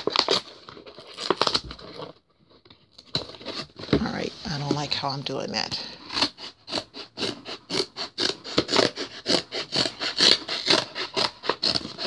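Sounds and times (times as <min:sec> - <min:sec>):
rasping scrapes on cardboard box: 0:05.9 - 0:12.0.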